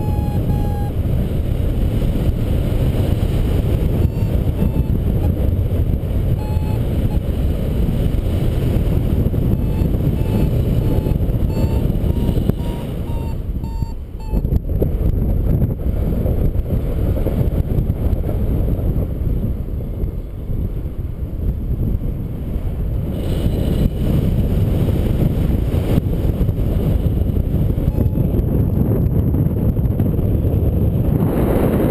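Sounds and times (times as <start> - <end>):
short electronic beeps: 0.0 - 1.0, 4.0 - 5.4, 6.4 - 7.3, 9.6 - 14.5, 27.9 - 28.3
wind rumble on microphone: 0.0 - 31.9.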